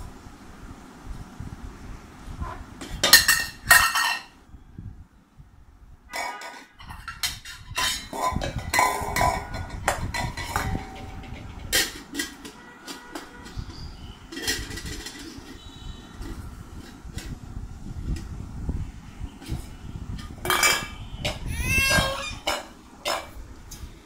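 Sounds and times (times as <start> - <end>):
metal pots clanking: 2.9 - 4.4, 6.1 - 13.6, 14.2 - 15.8, 20.4 - 23.4.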